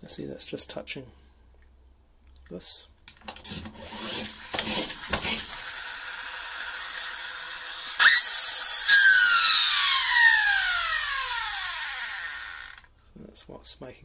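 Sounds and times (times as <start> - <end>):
toy flywheel motor whine: 3.8 - 12.9.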